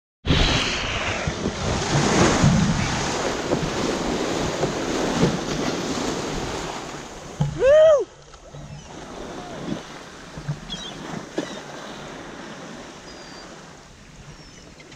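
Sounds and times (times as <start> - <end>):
wind on microphone: 0.2 - 14.6
sea water splashing: 0.3 - 14.9
whale call: 7.4 - 12.1, 12.9 - 14.9.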